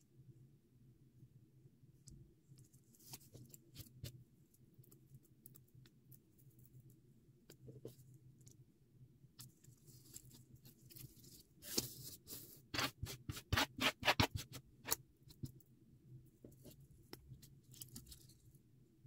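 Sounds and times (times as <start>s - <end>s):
paper rustling and crinkling: 9.8s - 14.6s.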